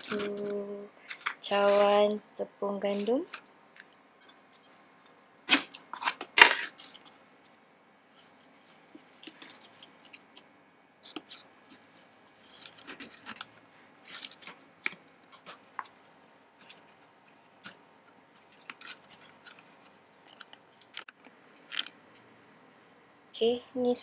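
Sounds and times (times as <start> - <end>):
plastic cup scraping jar: 0.0 - 2.1, 12.4 - 16.0
flour rustling: 0.0 - 3.4.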